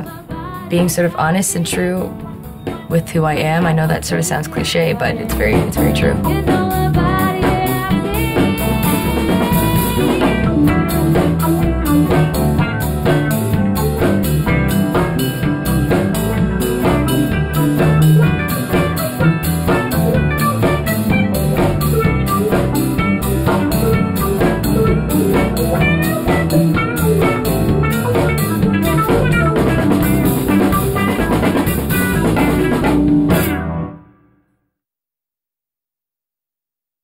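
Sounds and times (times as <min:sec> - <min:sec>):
woman singing: 0:00.0 - 0:11.0
electric guitar: 0:00.0 - 0:34.0
bass guitar: 0:00.0 - 0:34.1
drum kit cymbal beat: 0:00.7 - 0:33.6.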